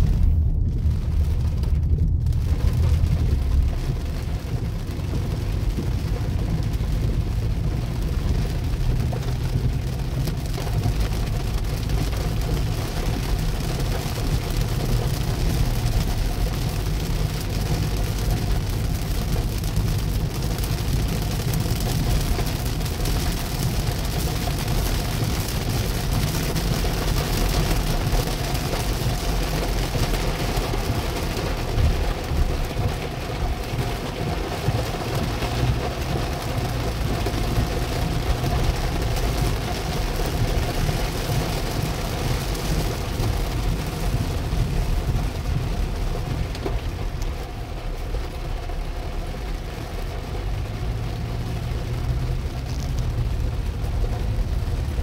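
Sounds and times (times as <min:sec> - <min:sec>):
car rumbling on road: 0:00.0 - 0:55.0
heavy rain on car roof: 0:00.0 - 0:55.0.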